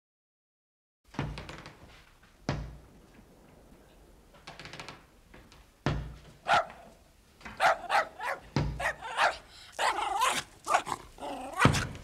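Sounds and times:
small dog barking: 0:06.4 - 0:07.0, 0:07.6 - 0:11.9.

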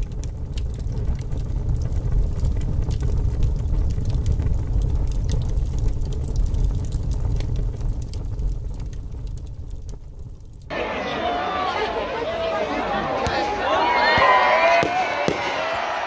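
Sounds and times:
deep steady rumble: 0:00.0 - 0:10.7
fire crackles: 0:00.0 - 0:16.0.

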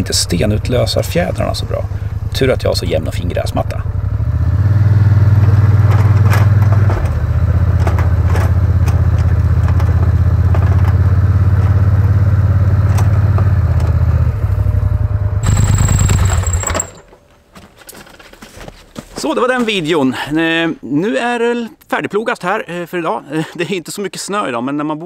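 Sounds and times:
plow blade scraping and knocking: 0:00.0 - 0:14.4
atv engine under load: 0:00.0 - 0:17.3.

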